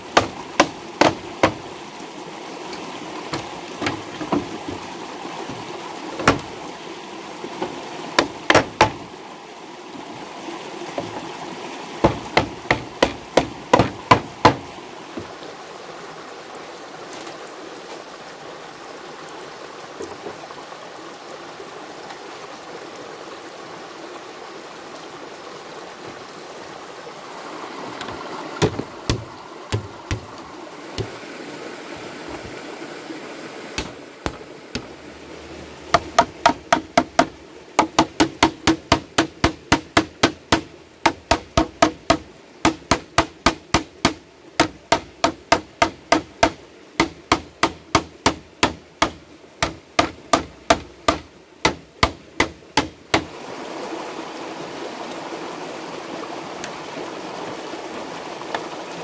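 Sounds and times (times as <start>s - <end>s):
stream running: 0.0s - 59.0s
hammering on bamboo: 0.1s - 1.7s, 2.7s - 4.9s, 5.5s - 6.6s, 7.6s - 9.1s, 12.0s - 15.3s, 28.6s - 30.4s, 31.0s - 31.2s, 33.8s - 34.9s, 35.9s - 53.3s.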